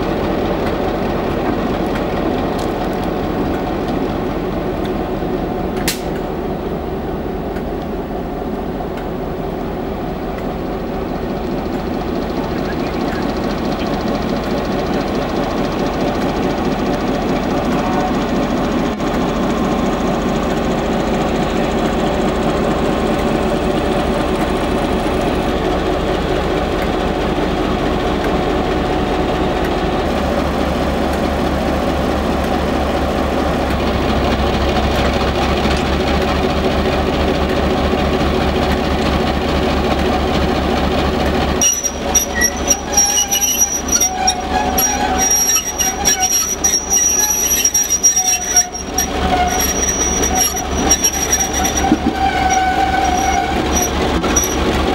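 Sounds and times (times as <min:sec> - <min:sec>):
diesel locomotive engine idling: 0:00.0 - 0:54.9
steel wheels squealing on rail: 0:11.1 - 0:25.5, 0:41.6 - 0:54.9.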